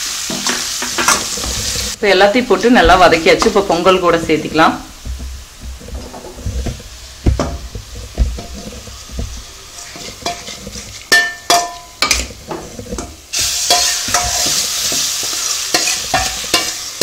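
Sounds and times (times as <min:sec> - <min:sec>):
food sizzling in a pan: 0:00.0 - 0:17.0
steel spoon scraping a pan: 0:00.1 - 0:02.0, 0:05.6 - 0:17.0.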